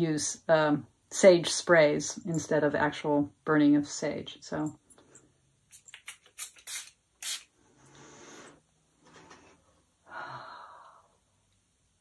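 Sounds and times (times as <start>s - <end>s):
spray bottle hissing puffs: 5.7s - 8.5s
deep breaths: 10.0s - 11.2s.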